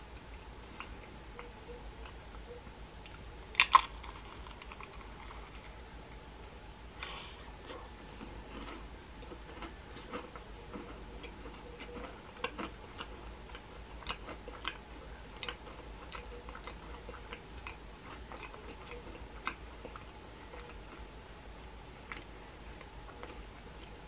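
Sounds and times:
steady low hum: 0.0s - 24.0s
mouth clicks and smacks chewing: 8.6s - 14.8s, 15.4s - 21.0s, 21.6s - 24.0s.

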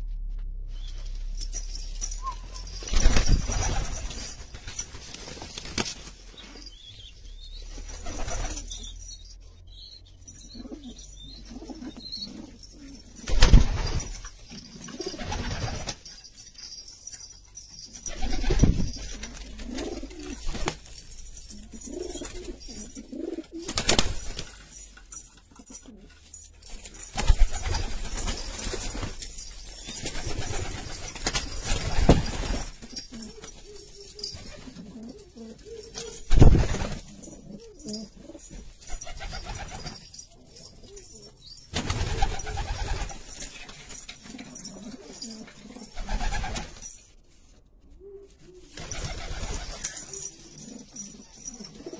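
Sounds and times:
pigeons cooing: 10.4s - 13.4s, 18.1s - 24.0s, 29.0s - 41.6s, 44.2s - 46.6s, 48.0s - 51.9s.

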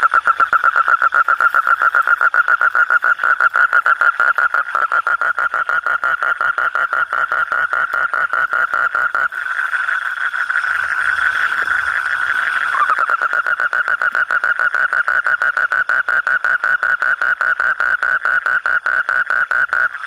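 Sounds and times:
toad pulsed trill: 0.0s - 20.0s.

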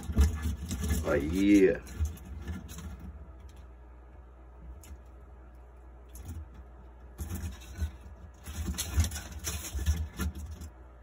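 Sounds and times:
lizard claws scrabbling on paper: 0.0s - 3.7s, 5.9s - 10.8s.

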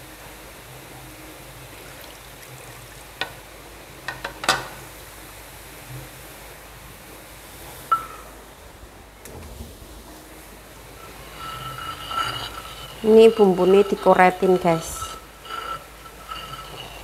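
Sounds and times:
pan hissing on stove: 10.1s - 17.0s
utensil clinking against pan: 11.0s - 17.0s.

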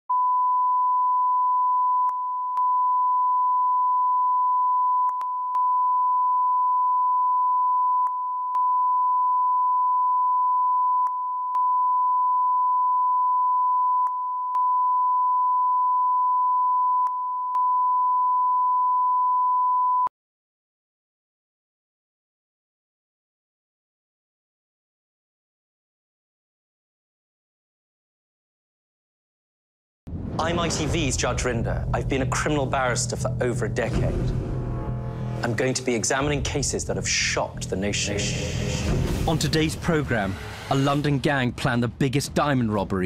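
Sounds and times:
steady sine test tone: 0.1s - 20.1s.

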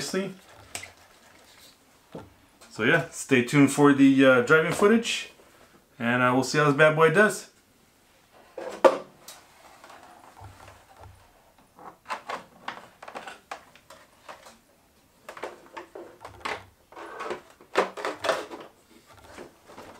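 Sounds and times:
plastic knocks clicks and rustles: 9.8s - 14.6s, 15.2s - 19.9s.

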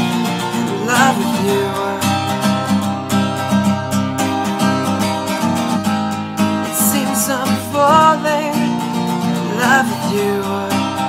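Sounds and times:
strummed acoustic guitar: 0.0s - 11.0s
person singing wavering line: 0.6s - 2.9s.

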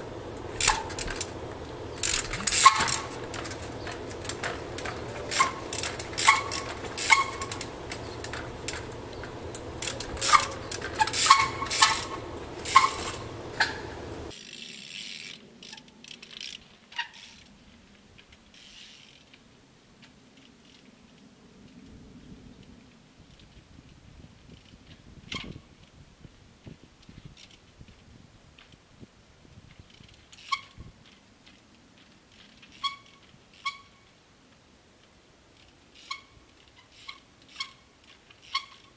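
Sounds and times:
metallic ring from bike: 0.4s - 14.3s.

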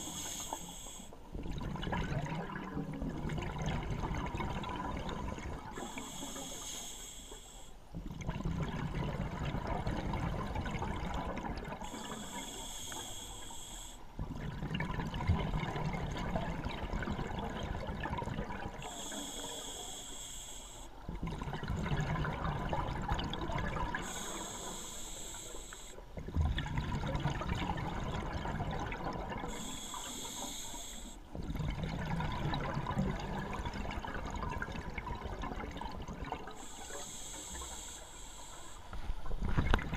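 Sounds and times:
hissing regulator inhales: 0.0s - 1.2s, 5.7s - 7.8s, 11.8s - 14.1s, 18.8s - 21.0s, 24.0s - 26.0s, 29.5s - 31.3s, 36.5s - 39.0s.

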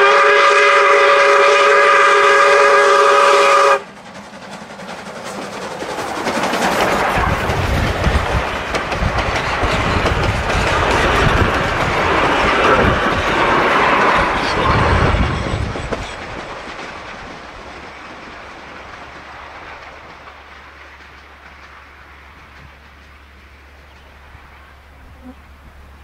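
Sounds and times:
train wheels clattering over rail joints: 3.8s - 24.6s.

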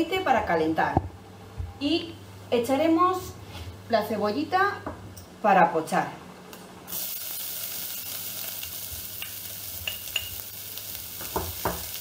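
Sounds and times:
onion sizzling in oil: 6.9s - 12.0s.

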